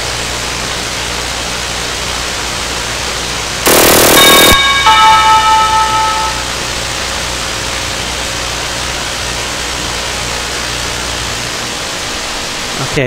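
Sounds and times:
low hum: 0:03.7 - 0:12.7
doorbell chime: 0:04.2 - 0:06.8
steady hiss: 0:06.5 - 0:13.0.

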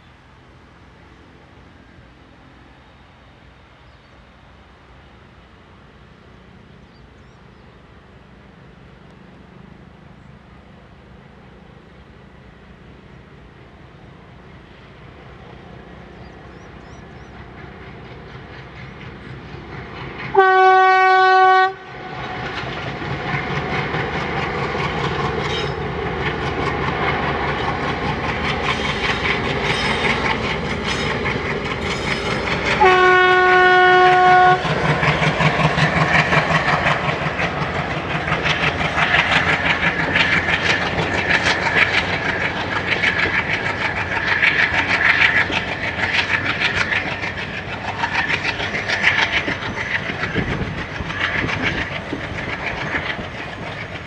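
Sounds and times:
diesel locomotive engine chugging: 0:00.0 - 0:54.0
locomotive horn blasts: 0:20.4 - 0:22.1, 0:32.8 - 0:34.7
train wheels clattering over rail joints: 0:22.1 - 0:54.0.

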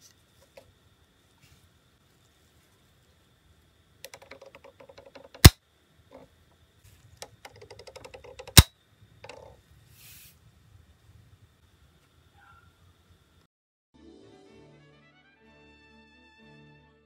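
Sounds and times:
small ratcheting clicks: 0:04.0 - 0:06.3, 0:07.2 - 0:09.6.

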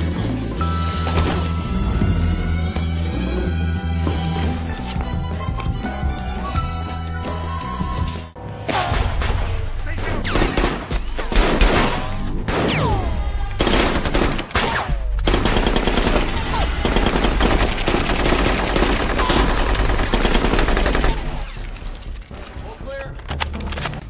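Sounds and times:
automatic rifles firing: 0:13.6 - 0:21.5.

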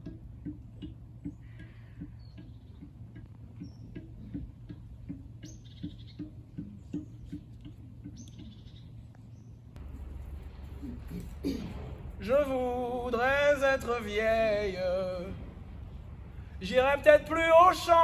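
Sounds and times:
cello plucked pizzicato: 0:00.0 - 0:09.1.

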